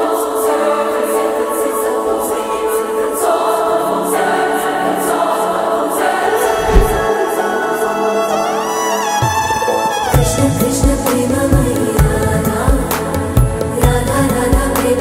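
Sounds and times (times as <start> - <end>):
choral soundtrack music: 0.0 - 9.2, 10.2 - 15.0
rising sweep: 6.4 - 7.1.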